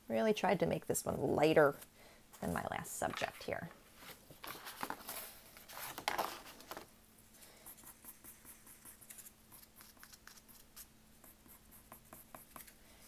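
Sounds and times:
pencil scratching on paper: 7.6s - 12.8s.

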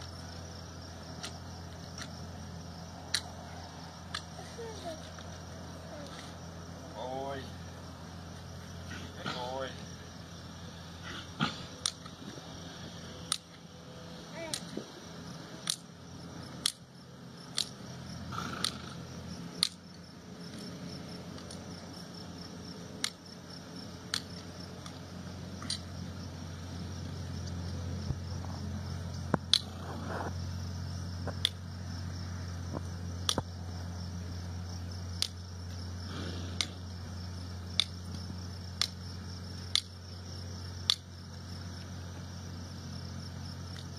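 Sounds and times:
steady low hum: 0.0s - 43.9s
hoof nippers clicking: 18.5s - 19.0s.

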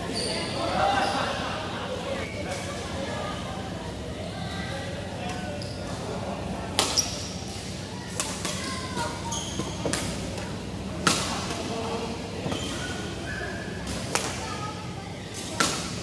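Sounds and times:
shoe squeaks: 0.0s - 1.2s, 6.9s - 7.4s, 8.6s - 9.9s, 12.4s - 13.8s
rackets striking shuttlecock: 15.5s - 16.0s.

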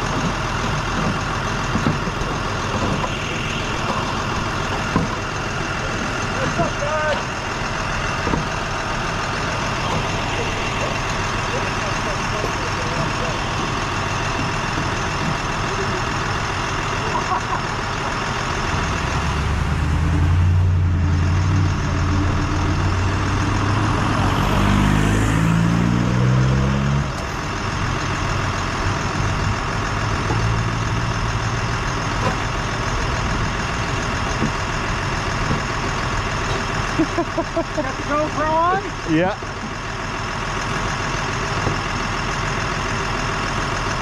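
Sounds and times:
truck engine idling: 0.0s - 44.0s
engine rising in pitch: 8.6s - 39.4s.

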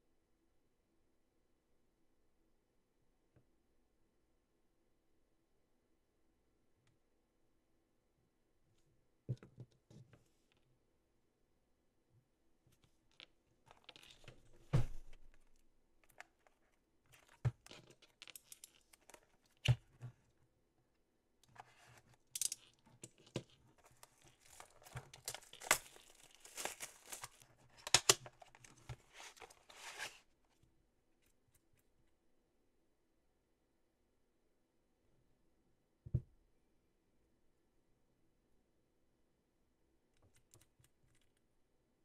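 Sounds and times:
plastic wrap crinkling and tearing: 23.8s - 30.2s.

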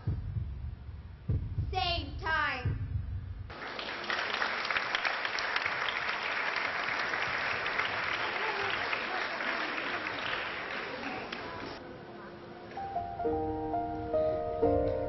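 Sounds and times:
audience applauding: 3.5s - 11.8s.

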